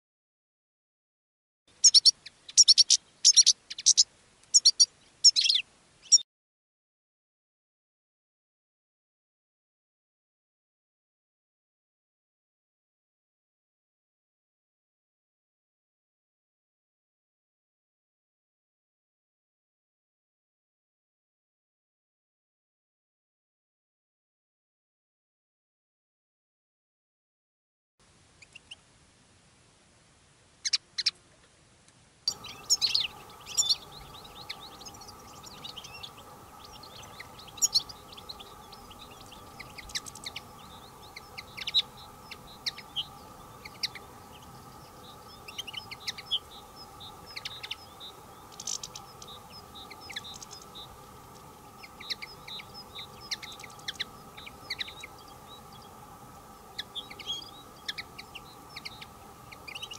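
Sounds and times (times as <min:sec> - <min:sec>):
finches twittering: 0:01.8 - 0:06.2, 0:32.3 - 0:59.9
faint drone: 0:32.3 - 0:59.9.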